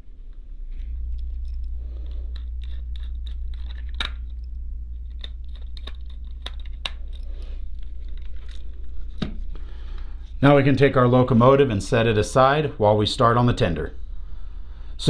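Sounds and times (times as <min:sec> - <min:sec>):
steady low hum: 0:00.0 - 0:15.0
screwdriver clicks and scrapes: 0:01.2 - 0:04.4, 0:05.1 - 0:08.7.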